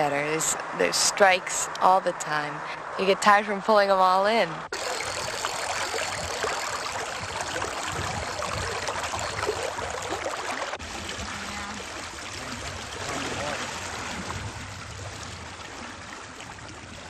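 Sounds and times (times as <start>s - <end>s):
river water rushing: 4.7s - 16.3s.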